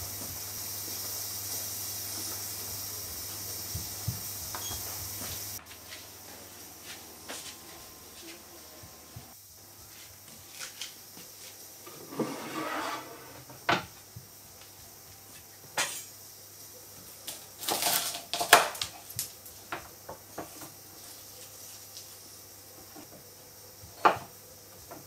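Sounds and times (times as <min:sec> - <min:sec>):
kitchen utensils clattering: 0:11.9 - 0:13.5.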